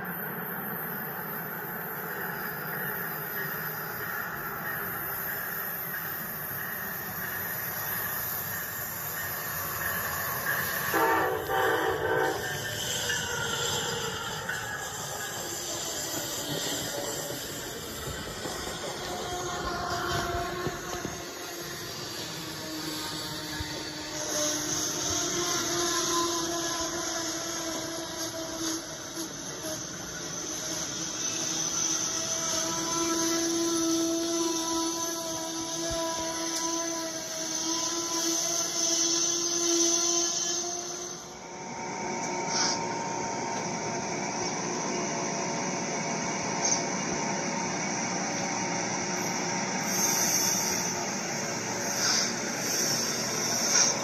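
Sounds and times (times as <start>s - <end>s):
toy train motor whirring: 51.8s - 54.0s.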